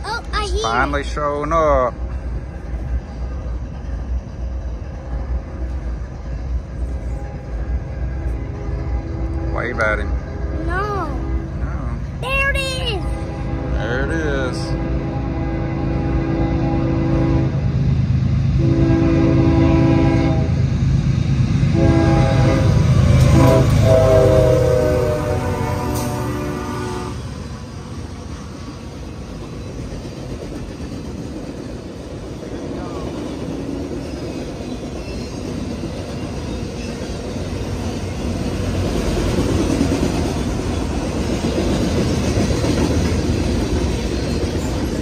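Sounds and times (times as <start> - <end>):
freight train rumbling past: 0.0 - 45.0
locomotive air horn blasts: 13.2 - 14.0, 14.6 - 17.6, 18.6 - 20.6, 21.7 - 27.2.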